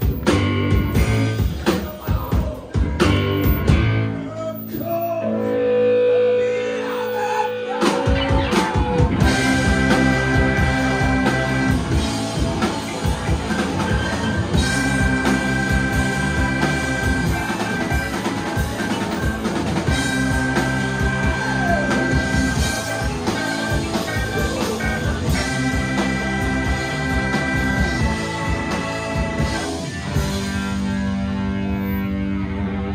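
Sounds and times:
drum kit beat: 0.0 - 4.2, 7.0 - 31.5
electric guitar riffs: 0.0 - 32.9
saxophones: 4.8 - 32.6.

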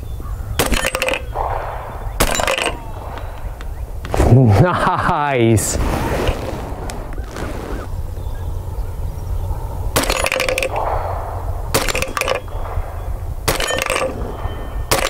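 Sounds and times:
gunshots: 0.6 - 4.6, 10.0 - 15.0.

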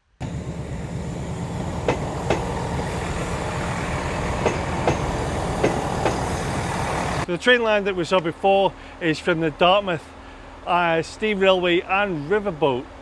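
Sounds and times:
train rumbling past: 0.1 - 7.3
wheels clicking over rail joints: 1.6 - 2.8, 4.2 - 6.5.

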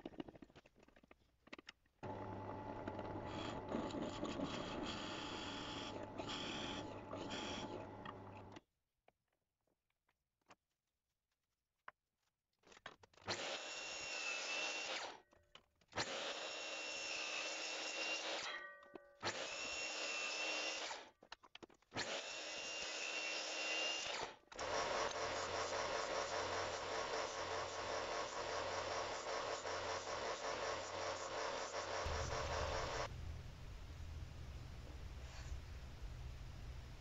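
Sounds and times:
miter saw motor whining: 2.0 - 8.4, 22.0 - 36.8
belt sander grinding: 2.0 - 8.6, 24.6 - 36.7.

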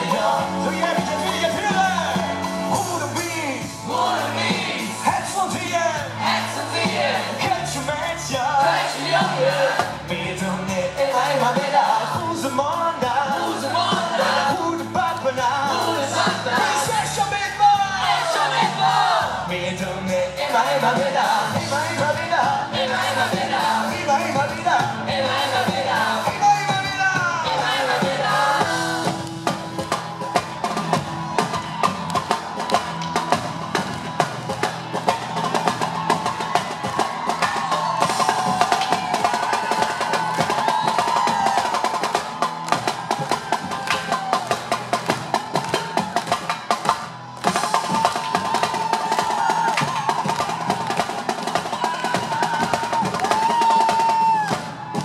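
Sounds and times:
live band music: 0.0 - 55.0
marching snare drum rolls: 24.5 - 55.0.

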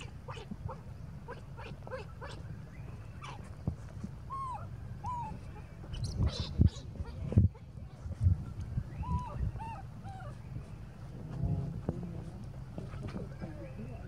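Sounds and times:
baby macaque squeaky calls: 4.3 - 8.0, 8.9 - 10.5
macaque coo calls: 9.0 - 10.4.

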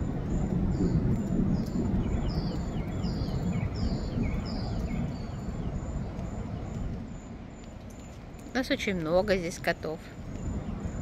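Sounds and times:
low steady rumble: 0.0 - 11.0
birds whistling: 0.7 - 8.2.

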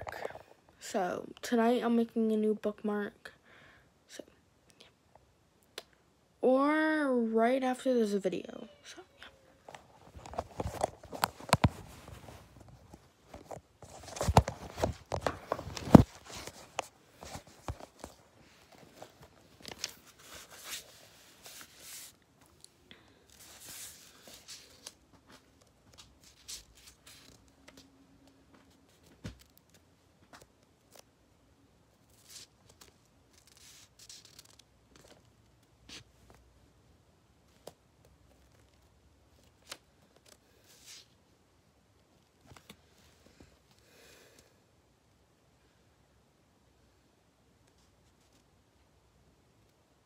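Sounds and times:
book pages turning: 9.7 - 22.7, 23.3 - 27.9, 32.0 - 36.5, 37.5 - 41.2.

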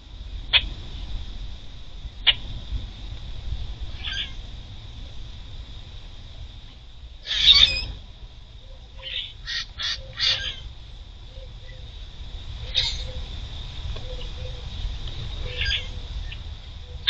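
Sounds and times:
steady high hum: 0.0 - 17.0
grackles squawking: 7.2 - 7.9, 9.0 - 10.6, 12.7 - 13.2.

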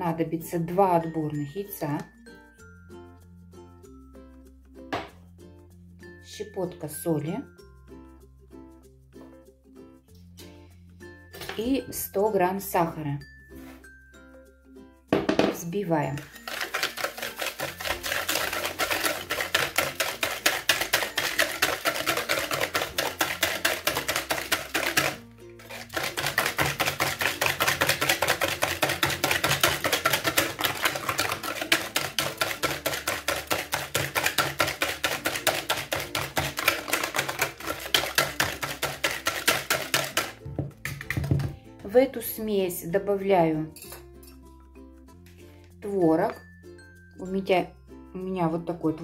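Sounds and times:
whisk clicking against plastic bowl: 16.1 - 41.4.

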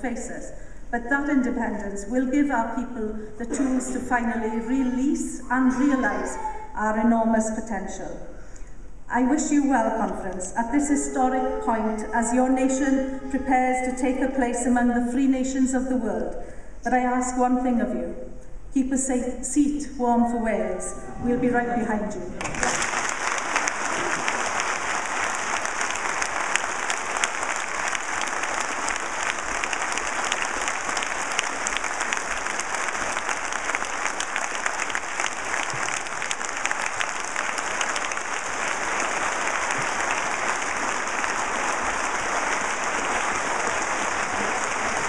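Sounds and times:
large audience applauding: 22.4 - 45.0.

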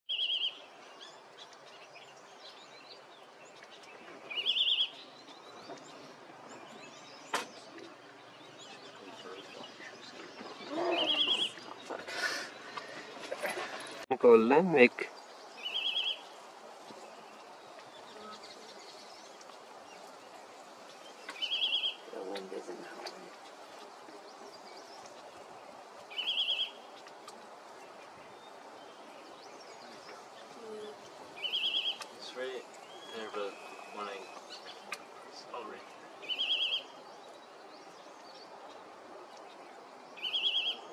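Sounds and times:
background hiss: 0.1 - 40.9
bird quavering trills: 10.5 - 13.1, 15.6 - 16.4, 21.2 - 23.2, 26.1 - 27.0, 30.5 - 37.0
bird high trill: 15.6 - 16.2, 21.4 - 22.0, 26.1 - 26.8, 31.4 - 32.0, 36.3 - 36.9.

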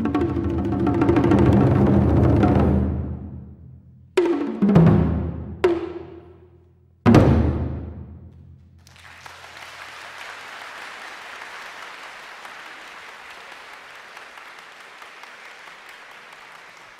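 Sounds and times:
audience applause: 8.8 - 16.9.

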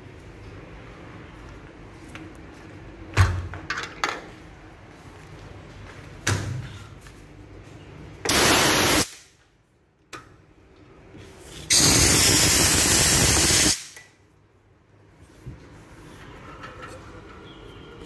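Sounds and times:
air hissing through valve: 8.3 - 9.2, 11.7 - 14.0.

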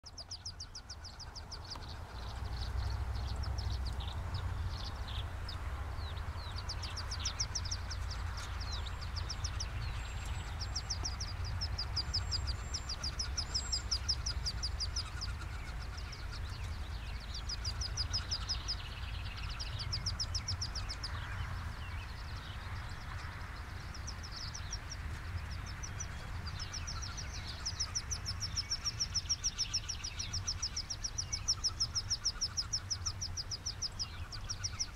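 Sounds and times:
high thin peeping calls: 0.0 - 34.9.

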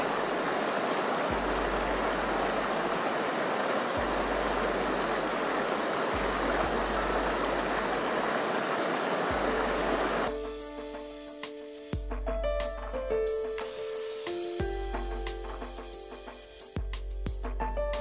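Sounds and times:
river flowing over stones: 0.0 - 10.3.

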